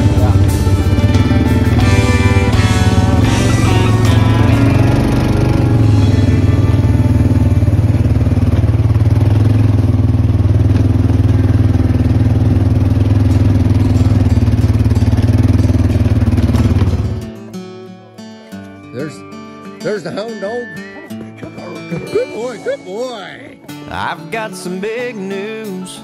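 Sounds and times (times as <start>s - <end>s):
vehicle engine running: 0.0s - 17.5s
plucked guitar notes: 0.0s - 26.0s.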